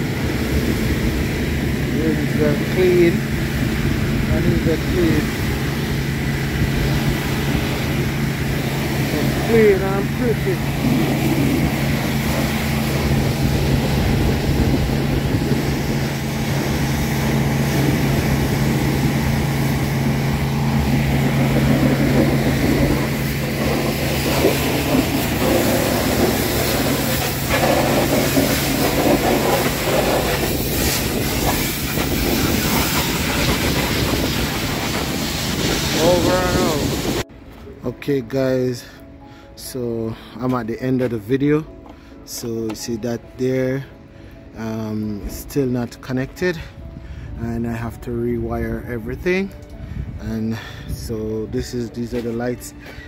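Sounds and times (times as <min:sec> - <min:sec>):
pressure washer motor hum: 0:00.0 - 0:37.3
water spray hissing: 0:04.8 - 0:37.2.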